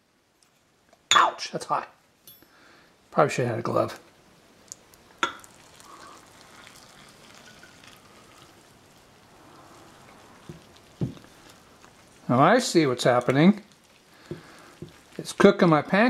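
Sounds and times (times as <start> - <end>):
water pouring and stirring: 4.7 - 15.9.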